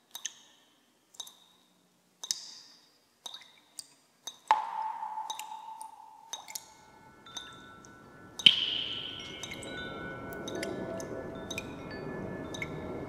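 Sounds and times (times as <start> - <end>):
sharp ringing clicks: 4.5 - 12.8
ringing strike tone: 6.7 - 13.0.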